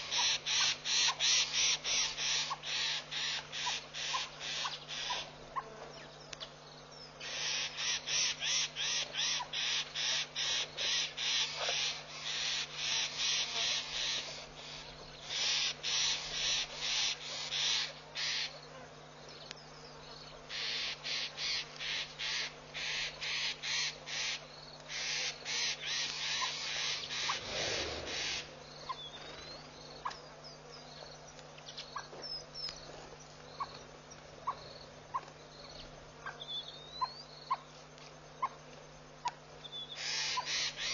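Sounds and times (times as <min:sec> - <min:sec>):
harsh rasping bird calls: 0:00.0 - 0:05.7, 0:07.1 - 0:18.7, 0:20.4 - 0:30.7, 0:39.2 - 0:40.9
low electrical hum: 0:00.0 - 0:40.9.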